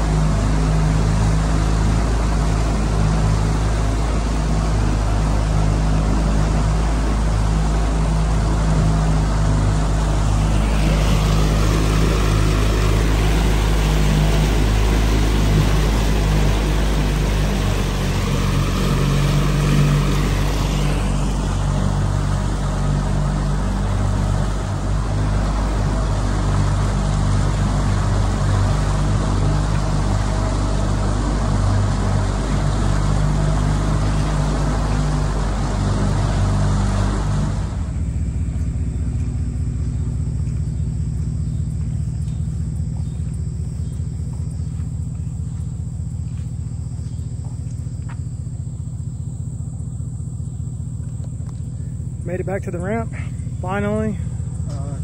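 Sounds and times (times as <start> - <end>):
broad rushing noise: 0.0 - 40.3
outboard motor running: 0.0 - 55.0.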